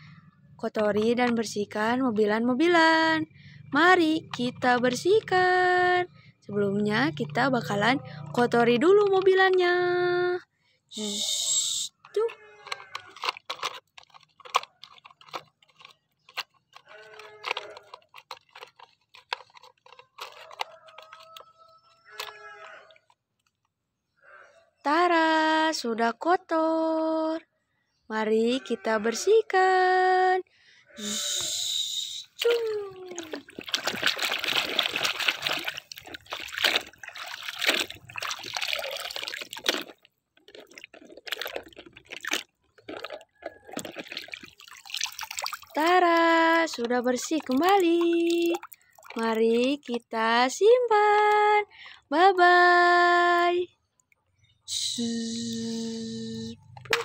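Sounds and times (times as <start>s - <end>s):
toy splashing in water: 11.9s - 22.4s, 32.4s - 50.0s
wet mud squelching: 12.1s - 21.4s, 32.4s - 50.0s
water dripping: 32.4s - 50.0s.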